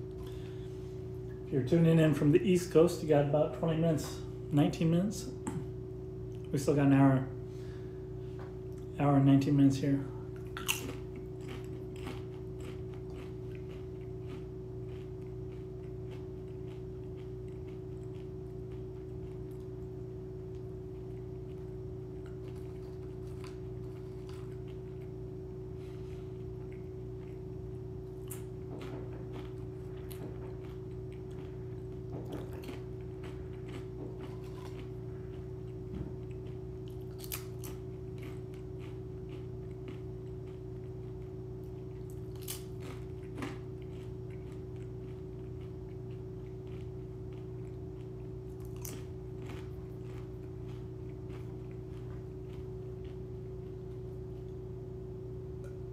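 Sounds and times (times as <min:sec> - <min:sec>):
steady background hum: 0:00.0 - 0:55.9
person chewing and crunching chips: 0:10.2 - 0:54.6.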